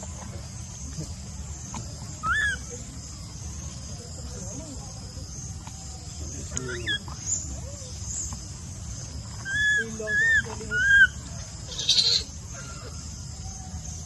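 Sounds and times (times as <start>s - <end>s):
baby macaque coo calls: 2.2s - 2.7s, 6.7s - 7.9s, 9.4s - 12.8s.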